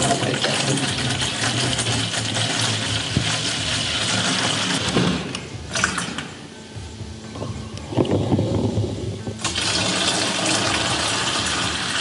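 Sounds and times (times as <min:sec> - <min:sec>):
water pouring into plastic bucket: 0:00.0 - 0:04.8, 0:09.4 - 0:12.0.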